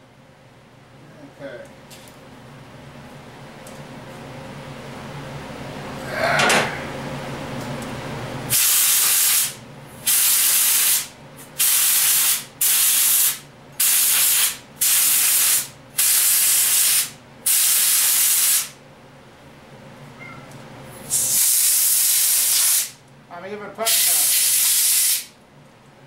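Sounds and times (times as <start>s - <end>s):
short hissing sprays: 8.5s - 18.7s, 21.1s - 23.0s, 23.9s - 25.3s.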